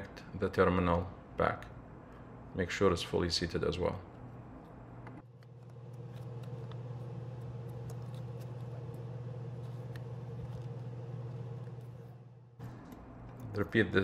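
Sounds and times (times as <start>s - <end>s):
steady low hum: 3.4s - 14.0s.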